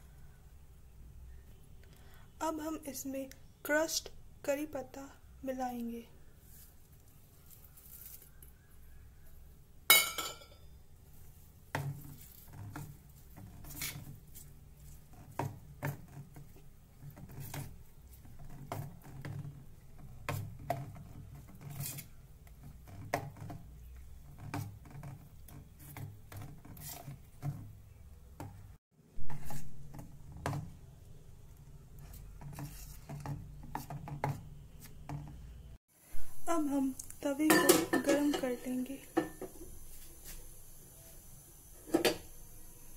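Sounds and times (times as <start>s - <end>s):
metal clink: 9.9s - 10.6s
spoon stirring batter in bowl: 11.1s - 35.6s.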